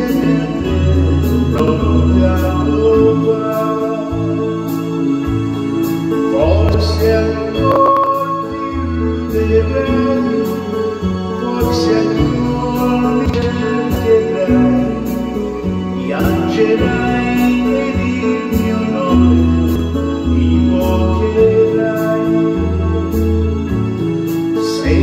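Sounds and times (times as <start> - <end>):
backing track with bass and chords: 0.0 - 25.0
man singing into a microphone: 0.0 - 25.0.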